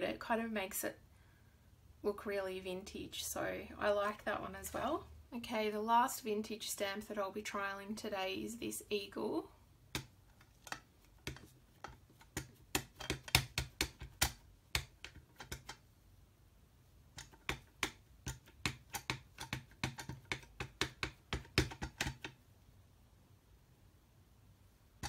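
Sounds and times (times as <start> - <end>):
rubber stamp tapping ink pad: 9.9 - 15.8, 17.2 - 22.4.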